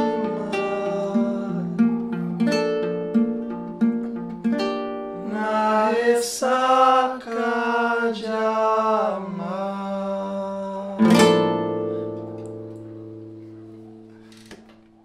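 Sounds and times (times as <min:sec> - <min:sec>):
man singing: 0:00.0 - 0:02.6, 0:05.2 - 0:11.7
acoustic guitar: 0:00.0 - 0:15.0.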